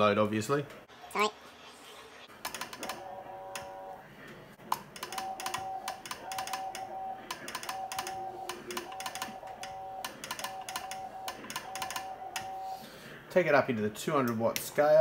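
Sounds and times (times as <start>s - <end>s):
telegraph key clicks: 4.7s - 12.5s
morse code beeps: 5.0s - 12.8s.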